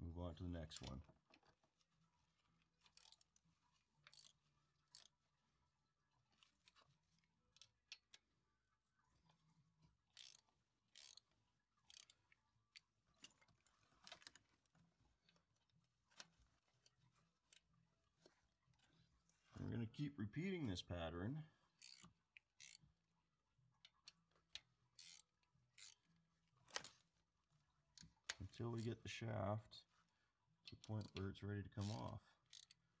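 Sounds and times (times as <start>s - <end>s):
ratchet wrench clicking: 2.9s - 3.2s, 4.1s - 5.1s, 10.2s - 11.2s, 11.9s - 12.2s, 21.8s - 22.8s, 25.0s - 26.0s, 31.8s - 32.8s.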